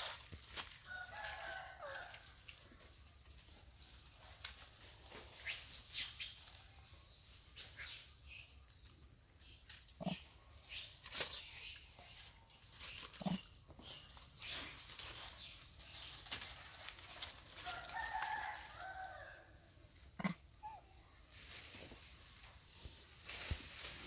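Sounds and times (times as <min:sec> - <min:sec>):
rustling in dry leaves: 0:00.0 - 0:24.0
monkey grunts: 0:20.2 - 0:20.8.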